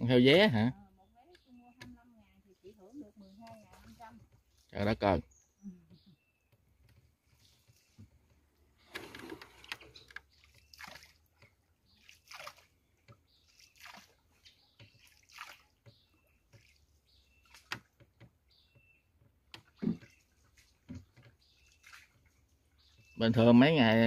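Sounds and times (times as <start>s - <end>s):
paddle splashing water: 2.8s - 4.8s, 6.8s - 23.2s.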